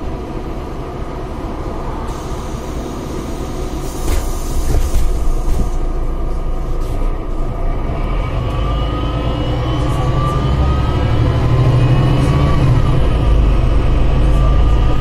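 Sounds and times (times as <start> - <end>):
bus diesel engine rumble: 0.0 - 15.0
brief air hiss: 2.1 - 5.8.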